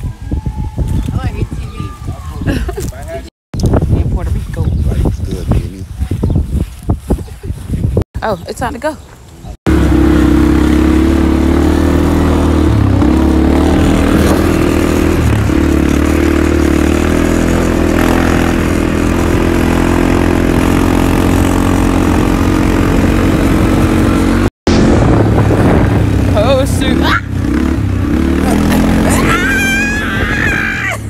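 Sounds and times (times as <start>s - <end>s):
quad bike engine running: 9.7s - 31.0s.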